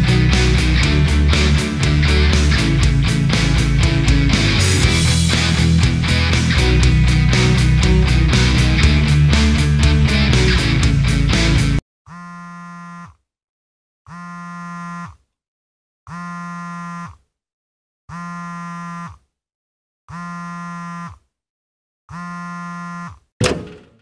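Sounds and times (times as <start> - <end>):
alarm buzzing: 12.1 - 13.2, 14.1 - 15.2, 16.1 - 17.2, 18.1 - 19.2, 20.1 - 21.2, 22.1 - 23.2.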